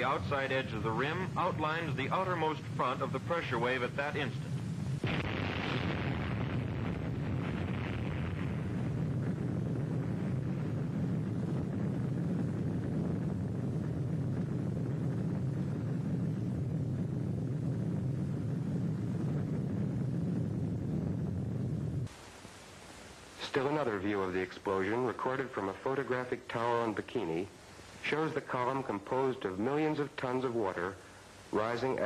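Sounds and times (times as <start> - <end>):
explosion rumble: 0.0 - 22.1
hiss: 22.0 - 32.0.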